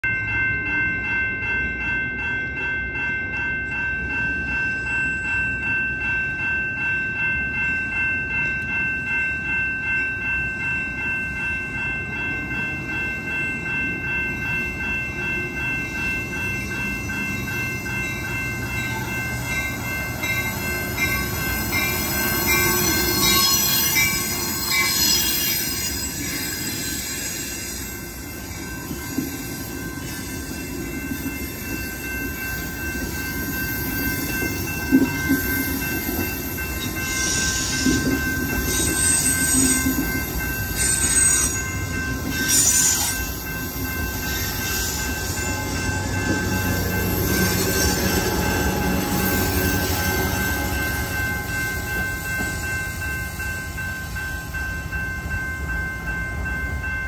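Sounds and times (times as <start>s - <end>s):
crossing warning bell ringing: 0.0s - 57.0s
train rolling past: 0.0s - 57.0s
train wheels squealing: 20.3s - 32.2s, 32.9s - 53.5s.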